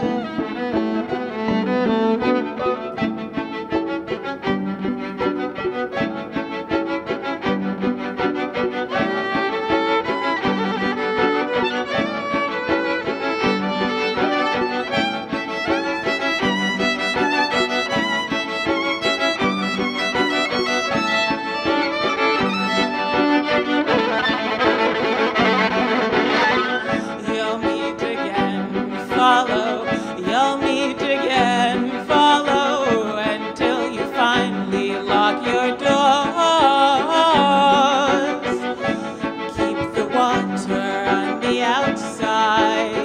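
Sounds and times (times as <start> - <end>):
layered bowed violin music: 0.0 - 43.0
woman singing with vibrato: 26.9 - 43.0.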